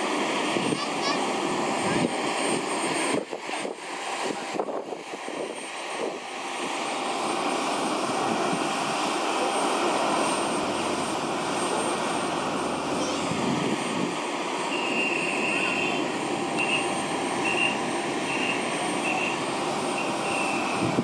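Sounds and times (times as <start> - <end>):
jet aircraft roar: 0.0 - 21.0
high whine: 6.2 - 21.0.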